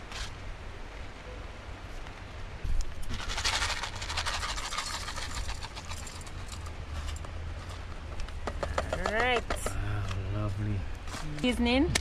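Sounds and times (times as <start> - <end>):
foil packet crinkling: 3.1 - 6.2.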